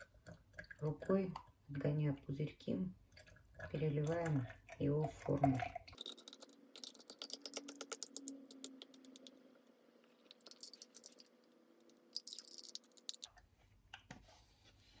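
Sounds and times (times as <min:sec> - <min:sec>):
slurry pouring crackling clicks: 0:03.1 - 0:09.4, 0:10.0 - 0:13.5.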